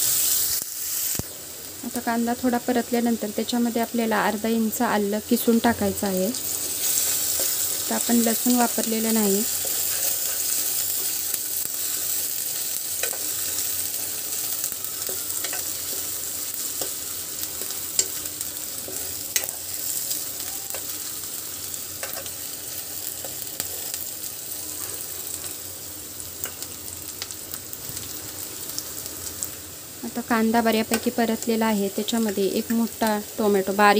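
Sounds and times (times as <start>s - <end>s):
onion sizzling in oil: 0.0s - 33.9s
spoon scraping a pan: 6.6s - 8.0s, 9.5s - 11.2s.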